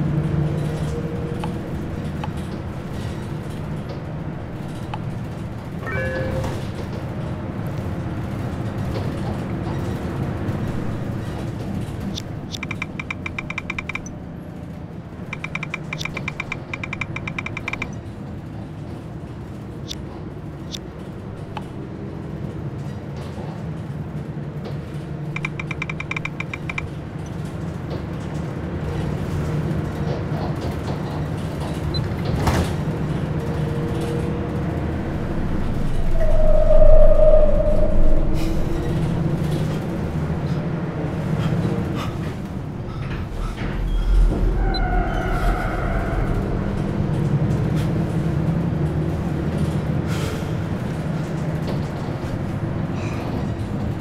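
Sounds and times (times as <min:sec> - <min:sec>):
bus cabin drone: 0:00.0 - 0:54.0
smartphone keyboard clicks: 0:12.2 - 0:14.1, 0:15.4 - 0:18.0, 0:25.4 - 0:26.9.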